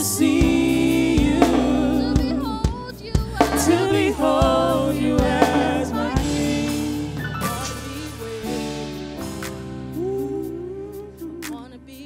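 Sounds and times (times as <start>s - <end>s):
people singing: 0.0s - 8.9s
keyboard notes: 0.0s - 10.9s
bass notes: 0.0s - 12.0s
drum hits: 0.4s - 8.0s.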